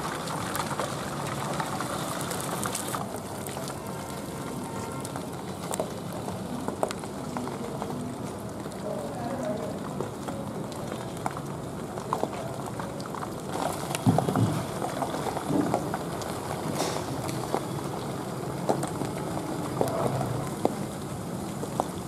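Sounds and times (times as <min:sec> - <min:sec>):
deep-frying sizzle and crackles: 0:00.0 - 0:22.0
oil popping: 0:00.1 - 0:04.0.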